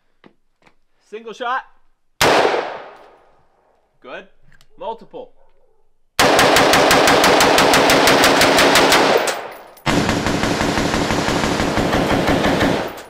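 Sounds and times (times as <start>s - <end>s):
rapid rifle gunfire: 6.2s - 13.0s.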